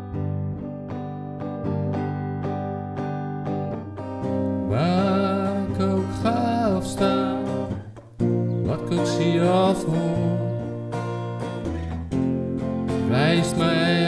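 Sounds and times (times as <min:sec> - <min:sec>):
strummed acoustic guitar: 0:00.0 - 0:14.0
person singing: 0:04.5 - 0:12.0, 0:12.8 - 0:14.0.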